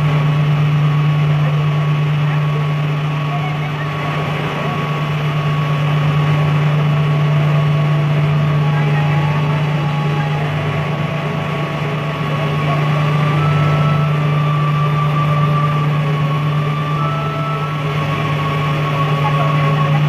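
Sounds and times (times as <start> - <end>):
machinery low hum: 0.0 - 20.0
steady machinery whine: 0.0 - 20.0.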